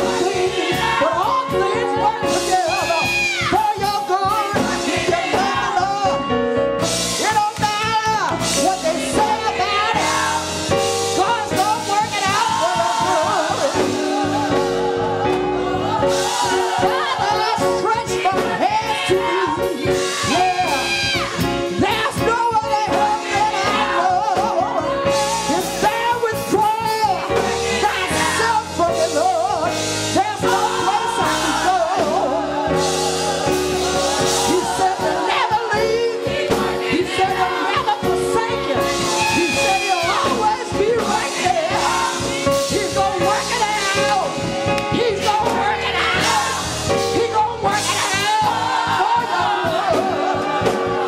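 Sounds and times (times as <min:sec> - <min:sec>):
woman singing into microphone: 0:00.0 - 0:06.2, 0:16.6 - 0:27.2, 0:34.5 - 0:50.8
choir voices: 0:00.0 - 0:07.5, 0:08.5 - 0:51.0
instrumental backing with beat: 0:00.0 - 0:51.0.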